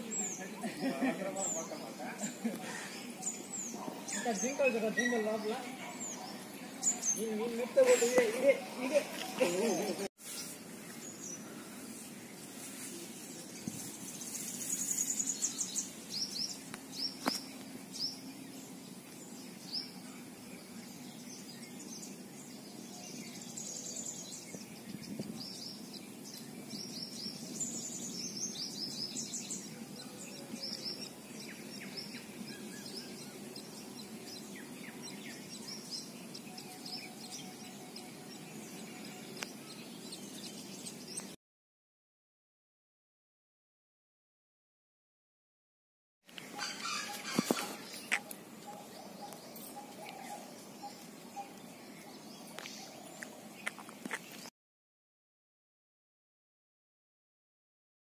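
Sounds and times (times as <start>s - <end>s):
small birds chirping: 0.0s - 41.4s, 46.3s - 54.5s.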